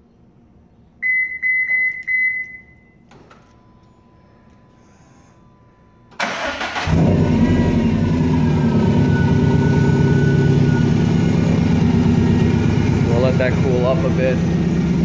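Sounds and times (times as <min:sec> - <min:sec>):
car engine idling loudly: 0:06.8 - 0:15.0.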